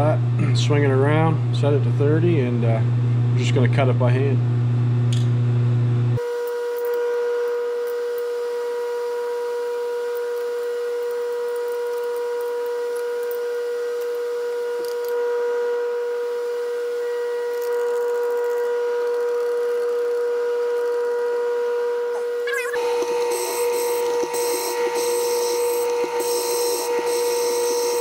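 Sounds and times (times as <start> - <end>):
steady electrical hum: 21.1 - 28.0.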